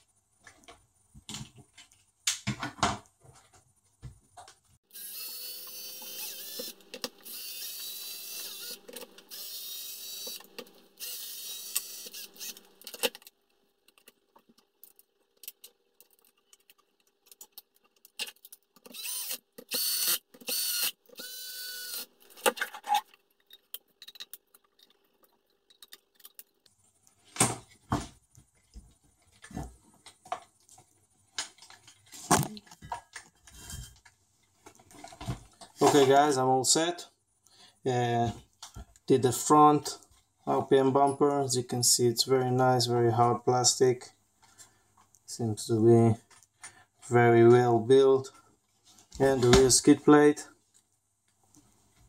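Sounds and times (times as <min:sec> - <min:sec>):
cordless drill whining: 0:04.9 - 0:12.8, 0:18.9 - 0:22.2
clicks and knocks of handling parts: 0:11.8 - 0:21.3, 0:22.0 - 0:36.2.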